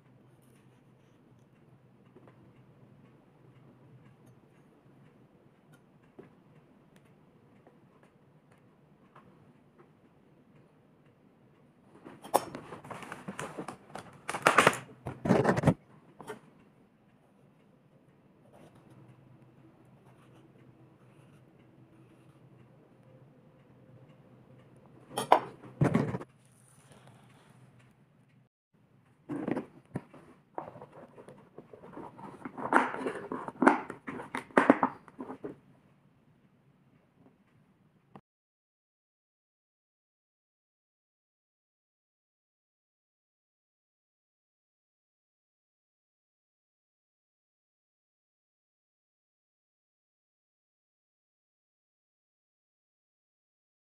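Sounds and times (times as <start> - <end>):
rustling and scraping food: 12.0 - 16.4, 25.1 - 27.8, 29.3 - 35.6
plastic lid rubbing and clicking: 29.3 - 35.6.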